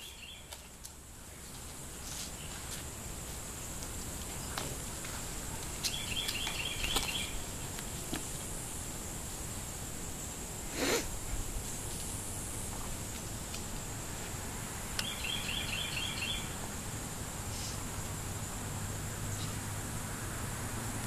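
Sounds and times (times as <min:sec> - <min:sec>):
bird chirping: 0:00.0 - 0:00.6, 0:05.8 - 0:07.6, 0:15.0 - 0:16.6.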